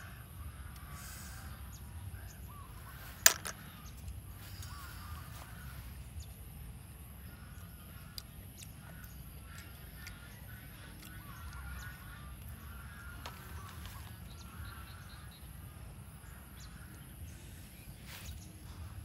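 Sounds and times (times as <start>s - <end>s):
faint bird calls: 0.0s - 19.0s
snail shells clicking: 3.2s - 4.8s, 7.6s - 11.7s.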